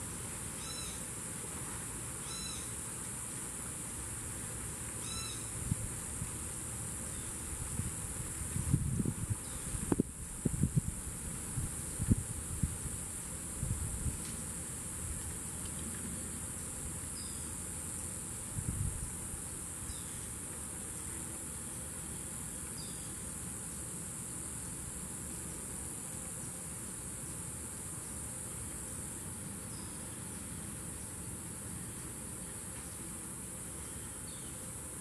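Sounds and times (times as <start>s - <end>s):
insect chorus drone: 0.0s - 35.0s
faint bird chirps: 0.6s - 1.1s, 2.2s - 2.7s, 5.0s - 5.5s.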